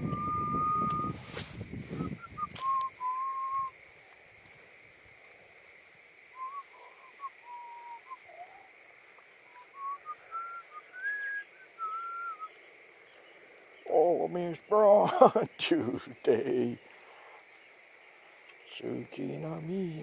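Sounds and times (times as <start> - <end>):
person whistling a tune: 0.0 - 1.2, 2.0 - 3.7, 6.4 - 8.2, 9.8 - 12.5.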